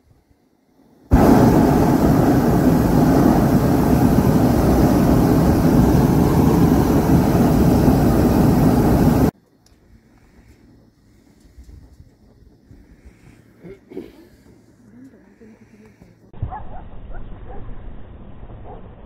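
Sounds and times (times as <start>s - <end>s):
propane burner blasting: 1.1s - 9.4s.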